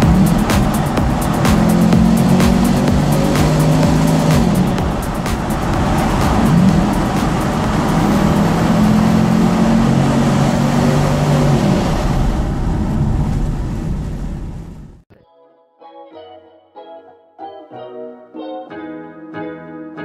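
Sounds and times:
car driving through tunnel: 0.0 - 15.0.

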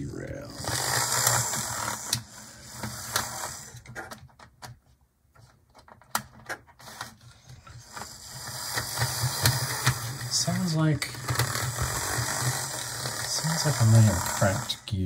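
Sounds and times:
model locomotive motor humming: 0.5 - 3.8, 7.8 - 15.0.

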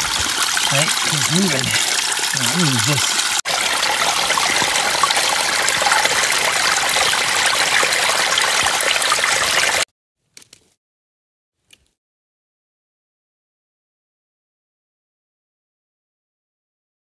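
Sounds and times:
water trickling over rocks: 0.0 - 9.9.

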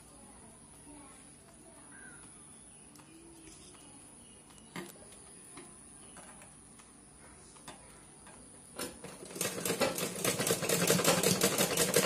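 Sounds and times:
sewing machine stitching: 8.8 - 12.0.

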